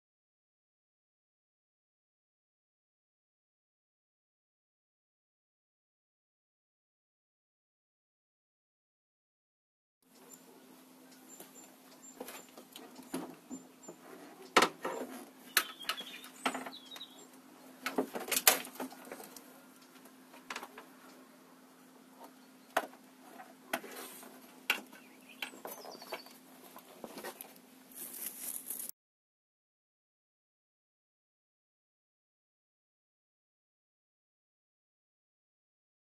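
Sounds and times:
birds chirping faintly: 0:10.1 - 0:18.1, 0:18.8 - 0:27.6
knocks clicks and scrapes: 0:12.2 - 0:16.8.

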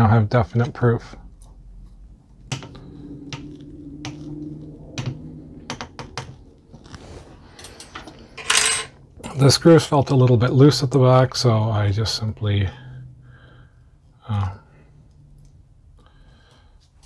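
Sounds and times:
rustling: 0:06.3 - 0:08.6.

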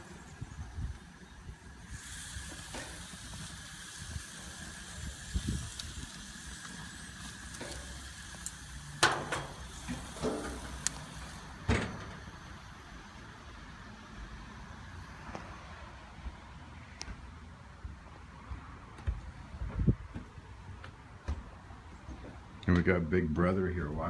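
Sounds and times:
barbecue grill hissing: 0:00.0 - 0:16.1.

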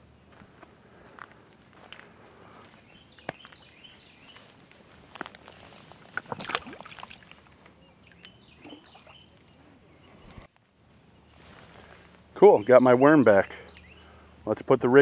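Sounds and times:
bird chirping: 0:02.7 - 0:04.5, 0:07.7 - 0:14.4
fish splashing into water: 0:06.1 - 0:07.6.

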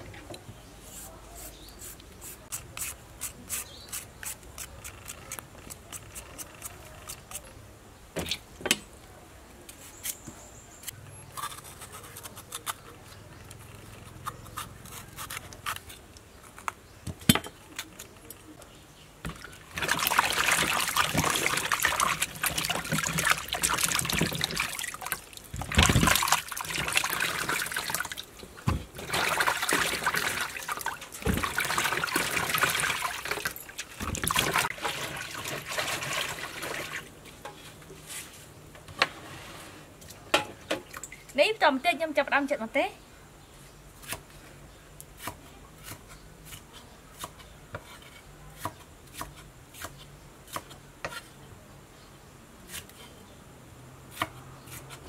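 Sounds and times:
water splashing and sloshing: 0:19.2 - 0:37.2.

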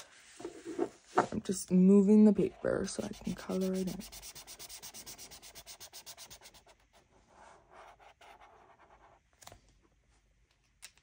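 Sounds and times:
marker rubbing on paper: 0:02.7 - 0:06.8.

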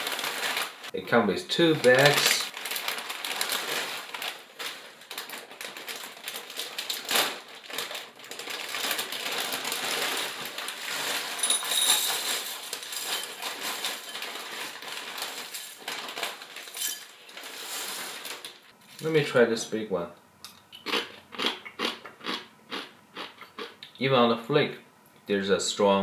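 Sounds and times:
plastic bag crinkling: 0:00.0 - 0:19.2.

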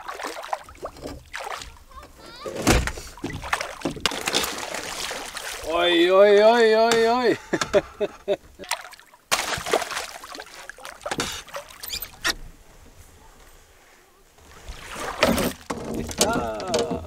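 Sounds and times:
water splashing around a canoe: 0:00.0 - 0:07.8, 0:08.4 - 0:13.0, 0:13.6 - 0:17.0
person speaking: 0:01.9 - 0:02.6.

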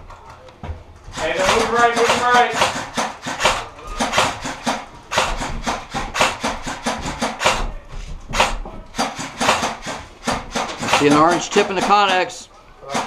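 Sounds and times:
airsoft gunfire cracks: 0:01.2 - 0:07.7, 0:08.4 - 0:12.1.

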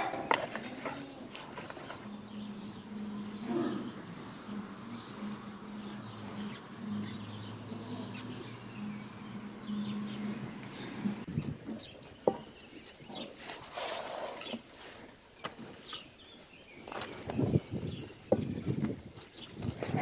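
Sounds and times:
birds chirping faintly: 0:00.0 - 0:20.0
steady low hum: 0:01.9 - 0:11.4.

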